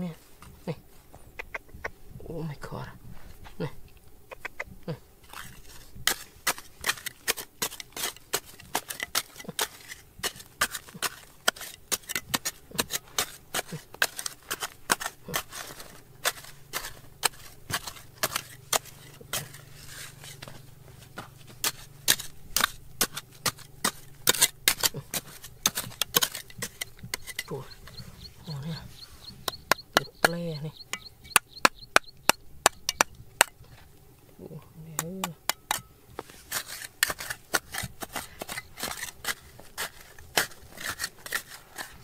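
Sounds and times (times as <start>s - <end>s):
faint low hum: 0.0s - 42.0s
sharp clicks and taps: 29.4s - 33.6s.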